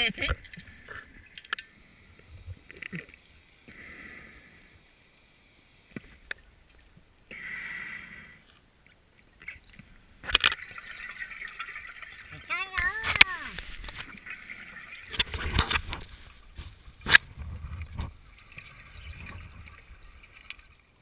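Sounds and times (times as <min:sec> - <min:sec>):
faint clicks: 0:00.2 - 0:03.3, 0:05.8 - 0:07.4
diver breathing through regulator: 0:03.7 - 0:04.8, 0:07.3 - 0:08.5
bubbling: 0:09.2 - 0:21.0.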